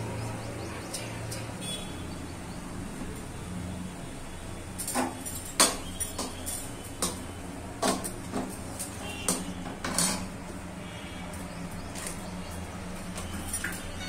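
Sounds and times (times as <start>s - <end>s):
metal pots and pans clanking: 4.8s - 10.3s.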